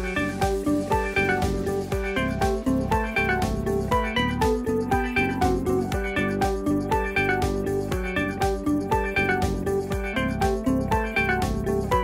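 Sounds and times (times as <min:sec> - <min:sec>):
background music with steady beat: 0:00.0 - 0:12.0.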